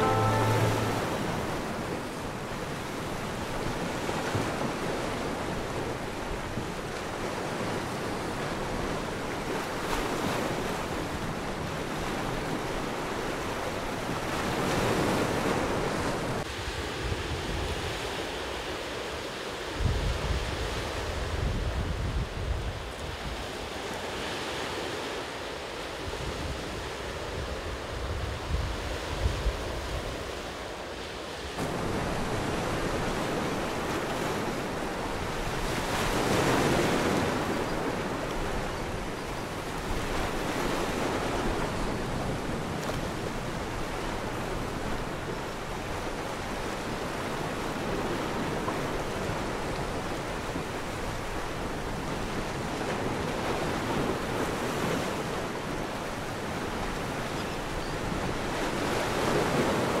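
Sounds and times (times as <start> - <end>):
ocean waves breaking: 0.0 - 16.7, 29.6 - 60.0.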